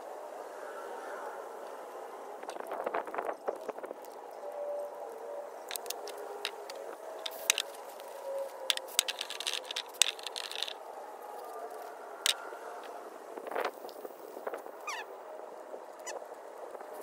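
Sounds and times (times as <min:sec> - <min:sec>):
tools clicking on engine parts: 0:05.7 - 0:08.1, 0:08.7 - 0:10.8
light scraping: 0:05.7 - 0:14.6.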